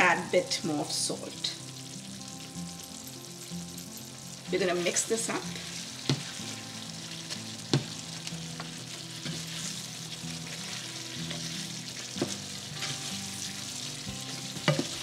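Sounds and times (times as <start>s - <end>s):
curry simmering and sizzling: 0.1s - 15.0s
spatula stirring in pan: 4.8s - 15.0s.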